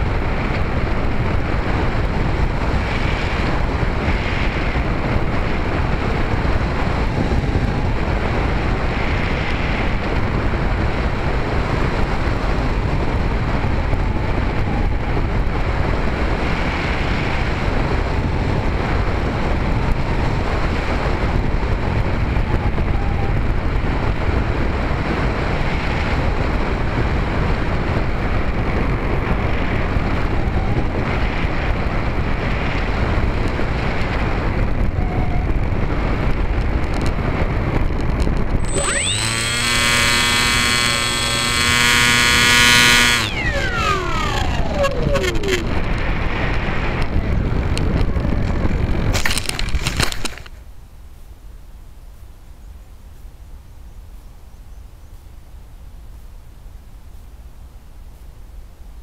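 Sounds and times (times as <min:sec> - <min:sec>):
wind rushing over camera: 0:00.0 - 0:51.4
electric motor and propeller whine: 0:38.5 - 0:48.1.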